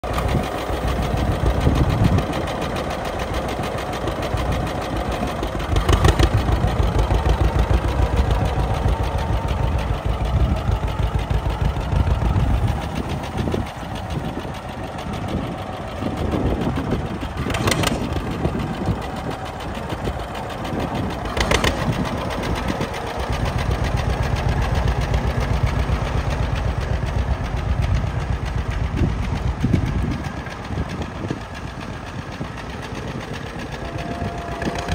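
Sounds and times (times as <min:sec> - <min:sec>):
tractor engine exhaust pulses: 0:00.0 - 0:34.9.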